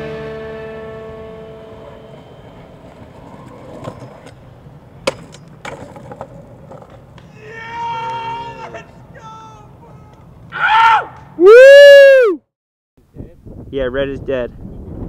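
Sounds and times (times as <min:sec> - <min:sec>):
scooter wheels rolling on asphalt: 0:01.1 - 0:10.6
scooter clacking on ground: 0:01.8 - 0:09.0.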